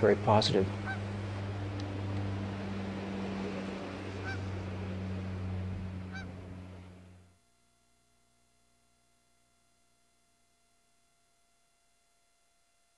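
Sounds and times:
low hum: 0.0 - 12.9
short bird calls: 4.2 - 4.6.

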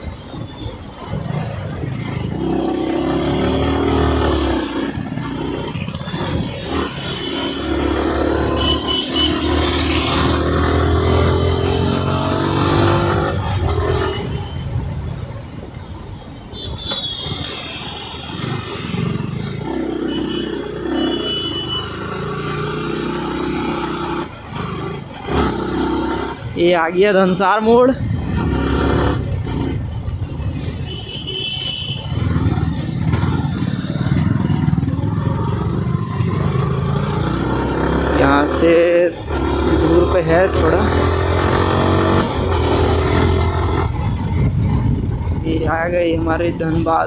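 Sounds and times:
traffic noise: 0.0 - 47.0
motorcycle engine revving: 0.1 - 14.5, 17.0 - 26.7, 27.7 - 30.9, 31.9 - 47.0
wind rush: 42.6 - 47.0.

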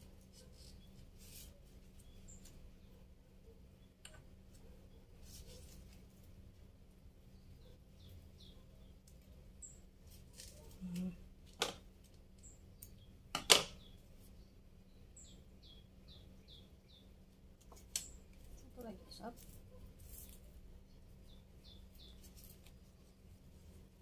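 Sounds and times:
bird chirping: 0.2 - 5.8, 7.2 - 9.9, 12.3 - 23.3.

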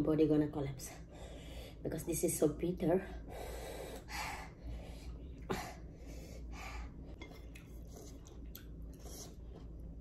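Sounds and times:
breaths: 1.1 - 1.8.

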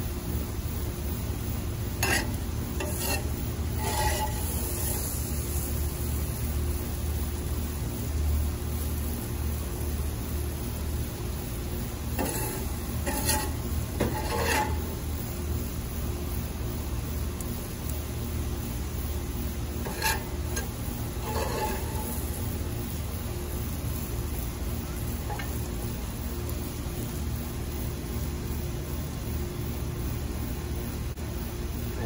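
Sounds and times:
steady hiss: 0.0 - 32.0
spatula scraping food: 1.9 - 5.3, 12.1 - 15.1, 19.7 - 22.6, 25.2 - 25.5.

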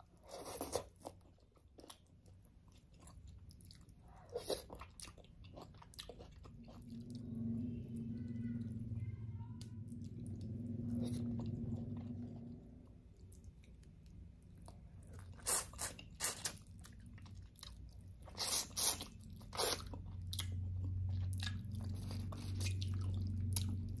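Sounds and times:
person chewing food: 0.0 - 8.9, 9.6 - 24.0
low steady hum: 0.0 - 24.0.

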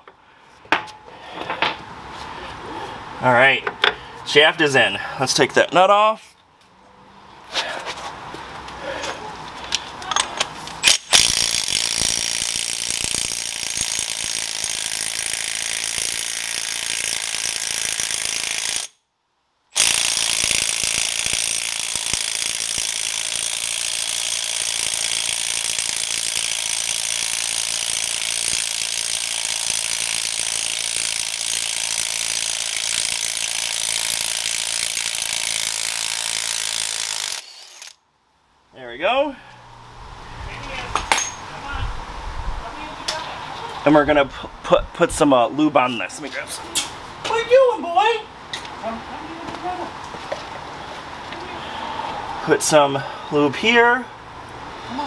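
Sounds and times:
ratchet wrench clicking: 10.8 - 19.0, 19.8 - 38.0.

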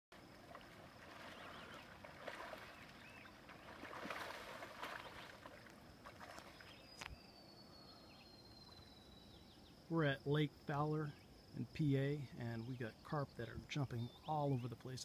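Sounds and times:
fish splashing at the surface: 0.3 - 6.6.

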